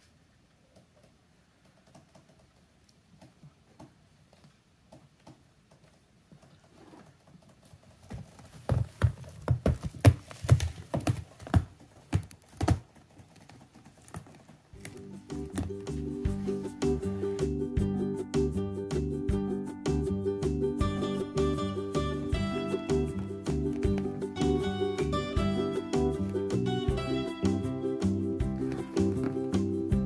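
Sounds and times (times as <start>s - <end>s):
cat paws knocking and scuffing: 0.8s - 17.5s, 22.4s - 27.3s, 28.0s - 30.0s
background music: 14.8s - 30.0s.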